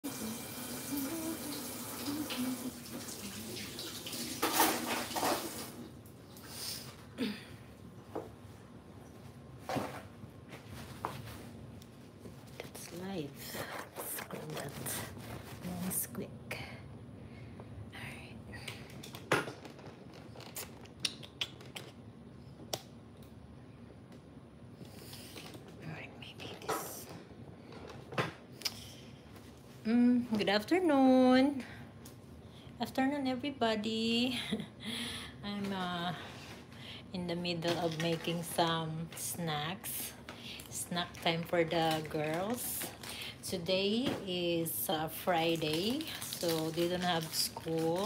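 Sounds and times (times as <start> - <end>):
water running from a tap: 0.0 - 5.8.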